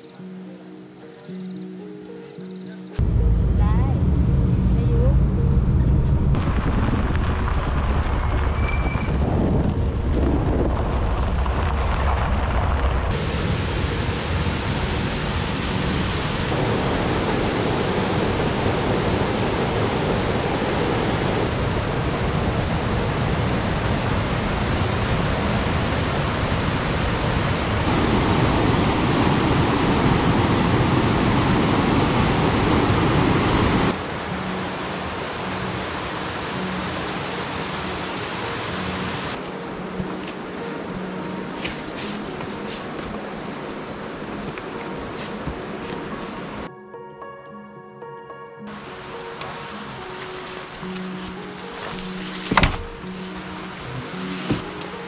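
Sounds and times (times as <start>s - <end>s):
low vehicle rumble: 3.0s - 16.9s
wind on microphone: 5.7s - 34.0s
mountain stream rushing: 13.1s - 46.7s, 48.7s - 55.0s.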